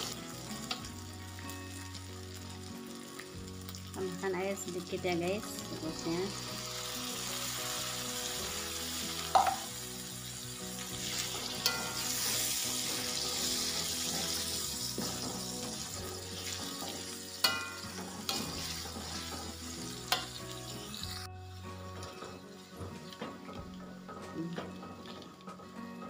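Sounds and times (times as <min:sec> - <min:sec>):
paste sizzling in oil: 0:00.0 - 0:25.5
metal spatula scraping wok: 0:10.8 - 0:21.3.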